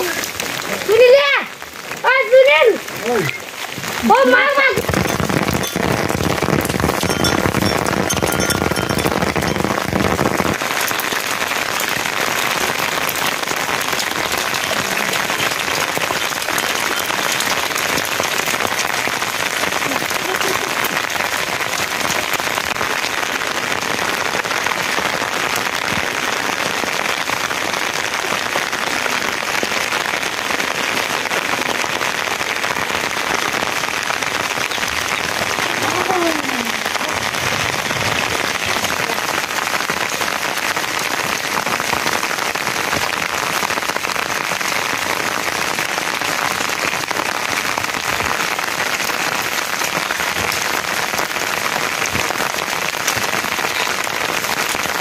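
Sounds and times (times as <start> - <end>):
rain falling on wet ground: 0.0 - 55.0.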